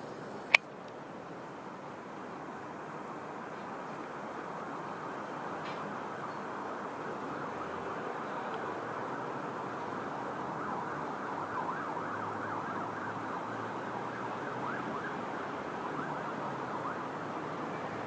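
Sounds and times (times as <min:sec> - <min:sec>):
emergency vehicle siren: 0:04.4 - 0:18.0.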